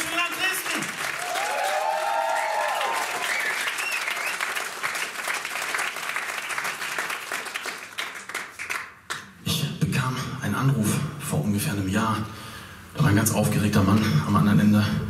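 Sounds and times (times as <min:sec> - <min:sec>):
audience cheering: 0:00.0 - 0:07.2
audience applauding: 0:00.0 - 0:09.1.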